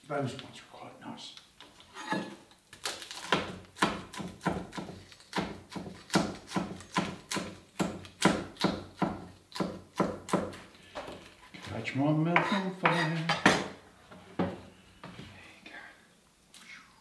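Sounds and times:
knife chopping on wooden board: 3.2s - 10.7s.

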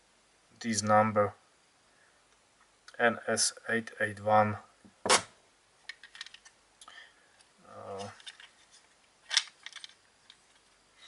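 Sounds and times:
small clicks and rattles: 5.9s - 6.9s, 8.0s - 10.8s.

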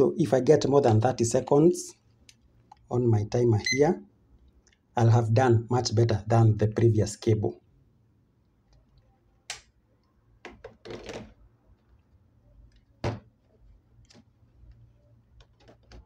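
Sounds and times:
objects knocking on a desk: 10.4s - 11.3s, 13.0s - 13.3s.

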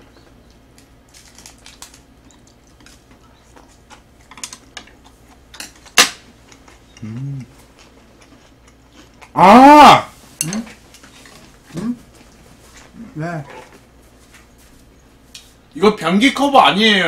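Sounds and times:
chewing: 0.0s - 9.4s
person humming: 7.0s - 7.6s
chopsticks clicking on metal dishes: 10.4s - 10.7s.

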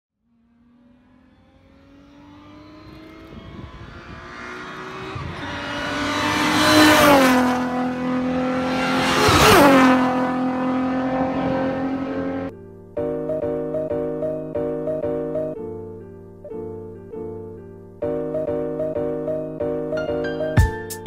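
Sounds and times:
race cars passing at speed: 0.2s - 12.5s.

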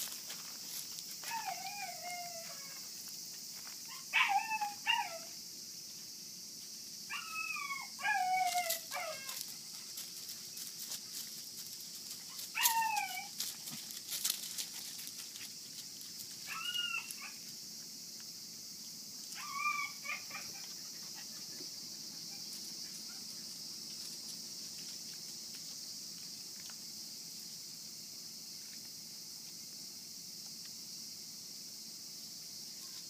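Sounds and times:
puppies yelping and whining: 7.1s - 9.4s, 12.3s - 13.3s, 16.5s - 17.4s, 19.4s - 21.3s.

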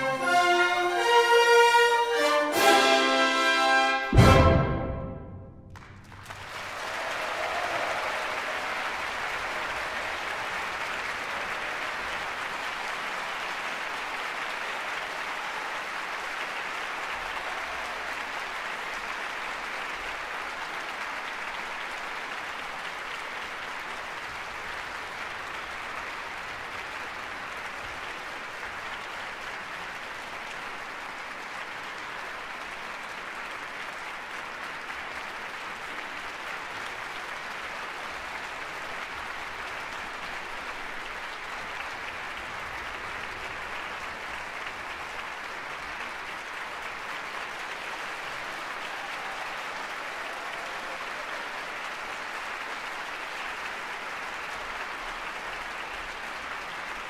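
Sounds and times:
orchestral music: 0.0s - 6.4s
audience applauding: 5.7s - 57.0s.

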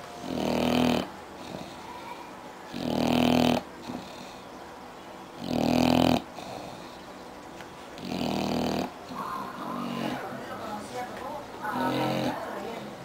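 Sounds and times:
dog snoring: 0.2s - 4.5s, 5.4s - 7.0s, 8.0s - 10.4s, 11.7s - 12.8s
dog breathing: 0.2s - 4.7s, 5.4s - 7.3s, 7.9s - 10.6s, 11.7s - 13.0s.

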